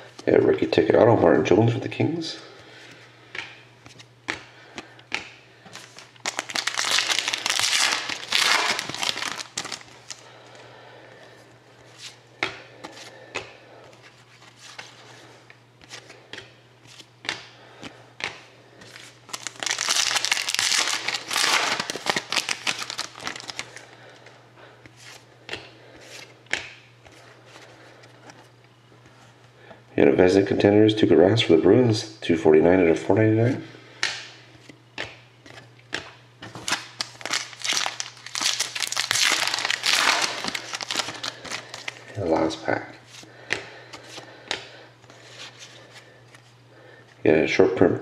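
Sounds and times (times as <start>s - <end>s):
wrappers crinkling and tearing: 5.8s - 10.3s, 19.0s - 23.9s, 36.5s - 42.2s.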